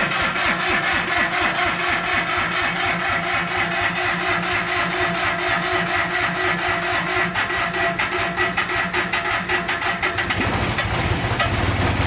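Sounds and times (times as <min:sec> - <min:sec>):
diesel tractor engine running: 0:09.8 - 0:12.0.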